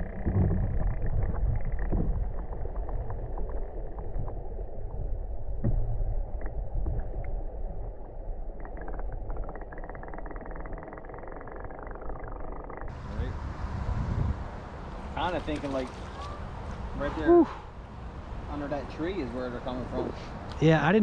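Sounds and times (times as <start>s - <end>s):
muffled underwater river rumble: 0.0s - 14.5s.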